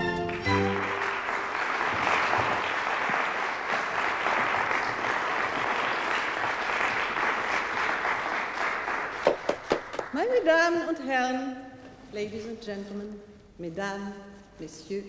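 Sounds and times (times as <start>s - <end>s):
music: 0.0s - 1.4s
audience applauding: 0.0s - 10.3s.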